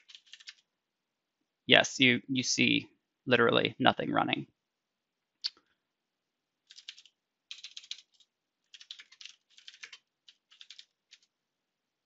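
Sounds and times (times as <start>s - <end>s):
typing on computer keyboard: 0.0s - 0.6s, 6.6s - 11.3s.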